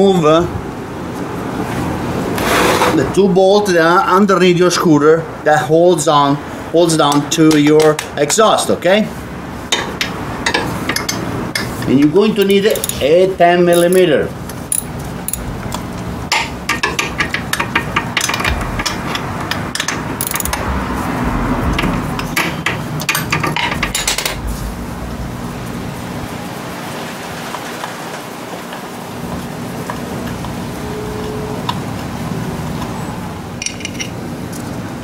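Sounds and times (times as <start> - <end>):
socket ratchet clicking: 12.4 - 13.1, 14.7 - 20.6.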